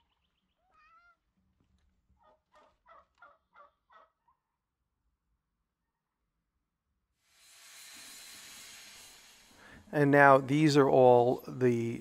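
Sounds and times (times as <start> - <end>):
turkey calling: 2.2 - 4.4.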